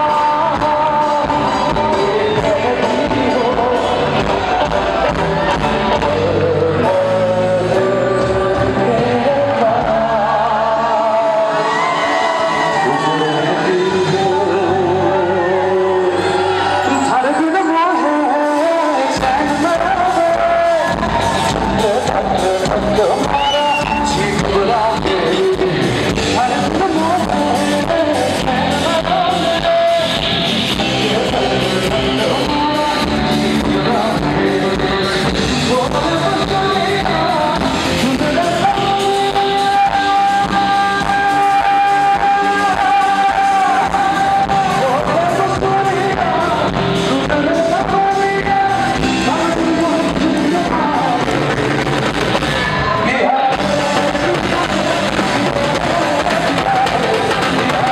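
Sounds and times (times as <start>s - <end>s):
electric guitar: 0.0s - 57.9s
man singing into a microphone: 0.0s - 57.9s
steady drum beat: 19.1s - 52.7s, 53.5s - 57.9s.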